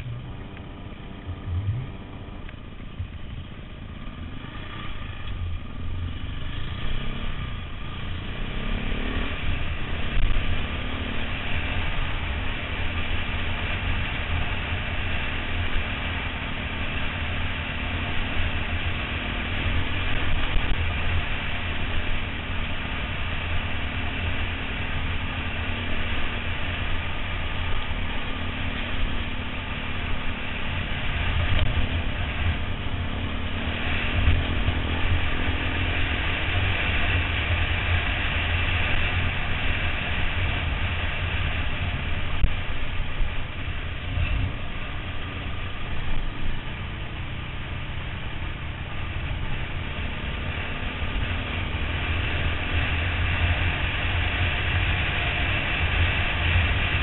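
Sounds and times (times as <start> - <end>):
motorcycle engine running: 0.0 - 57.0
wind rumble on microphone: 0.0 - 57.0.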